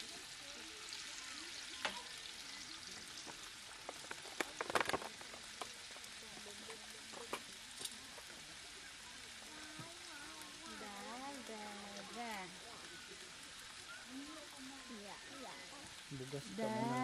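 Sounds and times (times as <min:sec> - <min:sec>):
sausages sizzling in a pan: 0:00.0 - 0:17.0
tongs and plastic clattering: 0:03.2 - 0:08.4.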